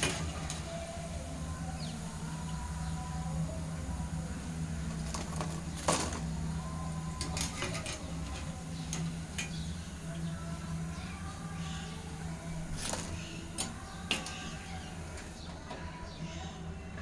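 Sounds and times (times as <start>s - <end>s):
low hum: 0.0s - 17.0s
kitchen utensils clicking: 7.2s - 9.6s, 12.8s - 15.4s.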